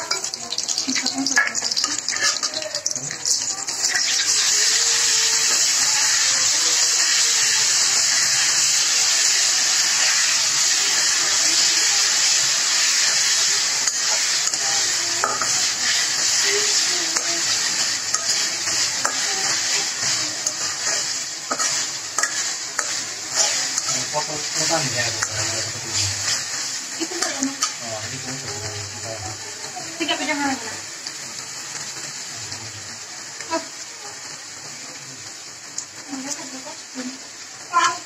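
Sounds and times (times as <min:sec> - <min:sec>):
onions sizzling in hot oil: 0:00.0 - 0:38.0
metal spatula scraping pan: 0:01.3 - 0:02.7, 0:13.1 - 0:27.8.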